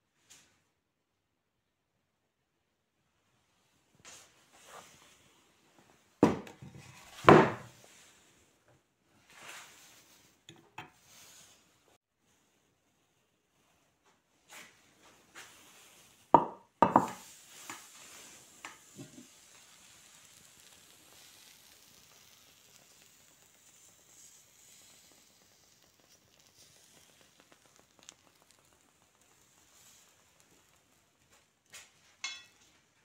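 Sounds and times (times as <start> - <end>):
eggs sizzling in pan: 4.5 - 12.1, 13.0 - 33.0
glass lid knocking on skillet: 16.4 - 17.2, 32.2 - 32.5.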